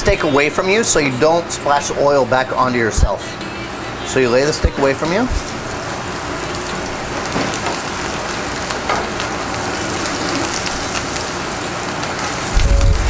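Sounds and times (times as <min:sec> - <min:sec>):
steak sizzling in oil: 0:04.7 - 0:13.0.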